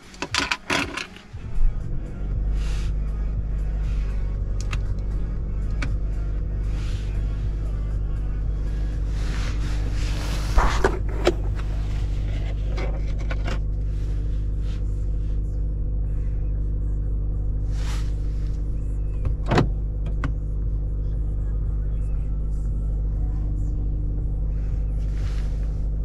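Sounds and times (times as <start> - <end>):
car cabin engine rumble: 0.0 - 26.0.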